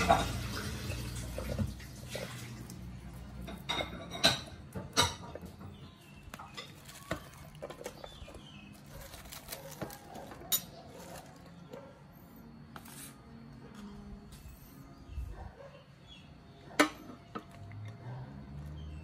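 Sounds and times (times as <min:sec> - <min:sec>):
vegetables rustling into pot: 0:05.0 - 0:11.8.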